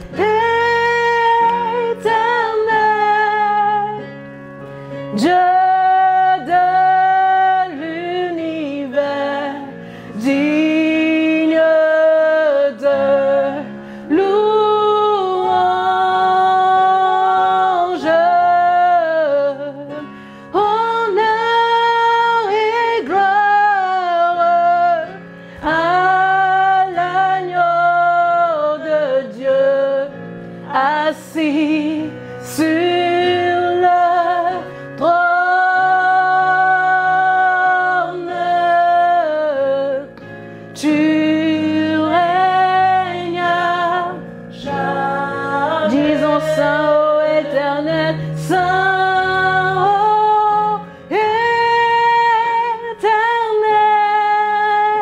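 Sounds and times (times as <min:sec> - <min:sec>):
women singing worship song: 0:00.0 - 0:04.2, 0:05.1 - 0:55.0.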